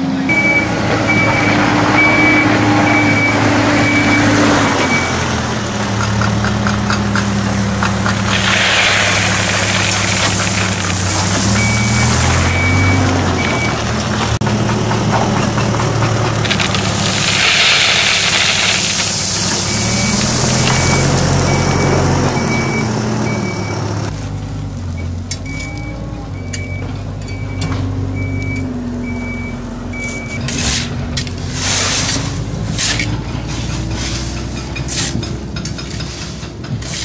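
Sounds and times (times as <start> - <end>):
heavy machine engine running: 0.0 - 37.0
reversing alarm beeping: 0.3 - 5.2, 11.4 - 13.8, 19.5 - 23.9, 24.9 - 30.5
soil and gravel pouring: 7.1 - 13.8, 16.0 - 22.4, 29.9 - 37.0
shovels scraping gravel: 7.4 - 13.0, 16.4 - 21.2, 30.0 - 37.0.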